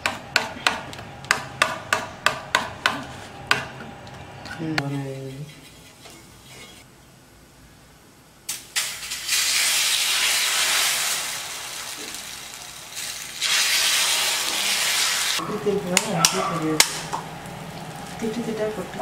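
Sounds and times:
batter sizzling on griddle: 8.5 - 15.4.

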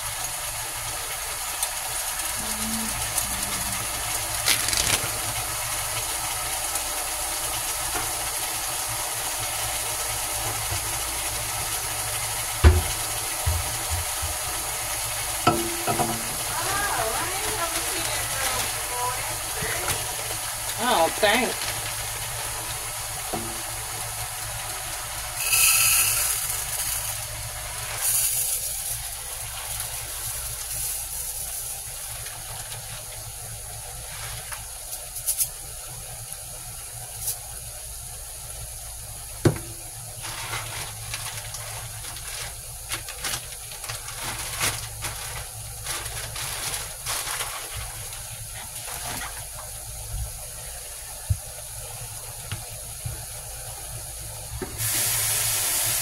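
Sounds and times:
loud hissing rush: 1.9 - 6.2, 54.2 - 56.0
pots and utensils clinking: 15.4 - 22.0, 25.4 - 27.2
faint hiss: 54.7 - 56.0.

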